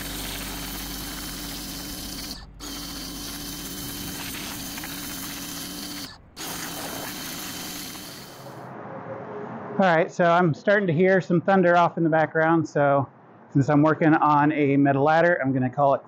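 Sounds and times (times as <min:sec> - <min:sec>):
pressure washer spray hissing: 0:00.0 - 0:08.6
machine running drone: 0:00.0 - 0:08.7.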